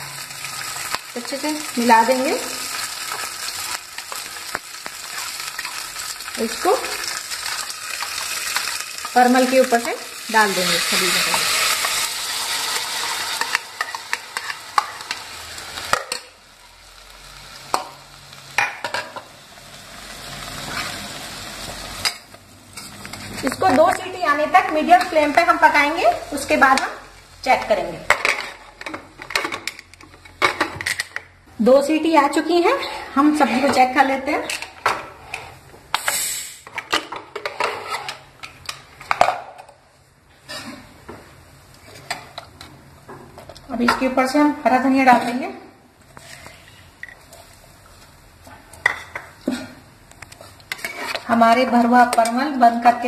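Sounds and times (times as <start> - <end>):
gravy sizzling: 0.0 - 31.1
pressure cooker hiss: 35.9 - 36.7.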